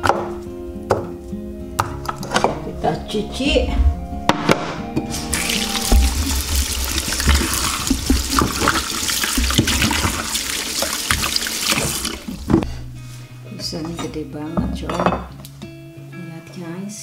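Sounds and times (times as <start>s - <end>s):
tap water running into bowl: 5.3s - 12.6s.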